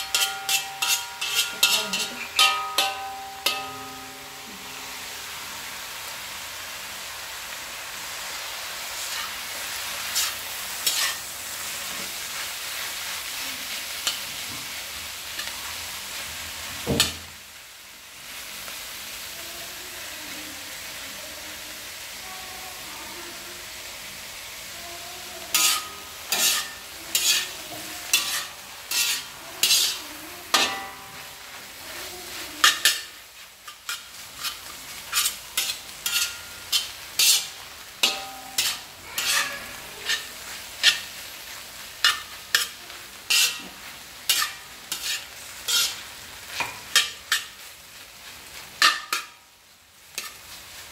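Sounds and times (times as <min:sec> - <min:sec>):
spatula scraping the pan: 0:00.0 - 0:05.2, 0:08.9 - 0:16.2, 0:25.4 - 0:49.4, 0:50.0 - 0:50.9
food sizzling in hot oil: 0:00.0 - 0:50.9.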